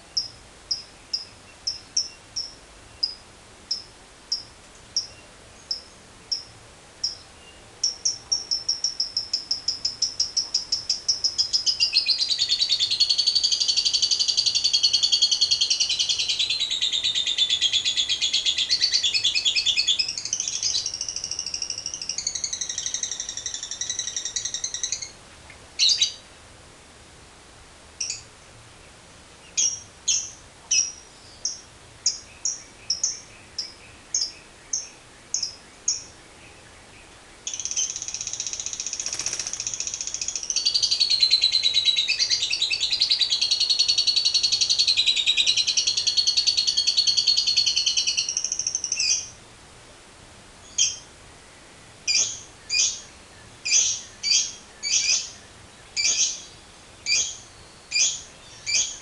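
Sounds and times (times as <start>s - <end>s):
lovebird chirps and chatter: 37.5s - 49.3s, 56.0s - 56.4s.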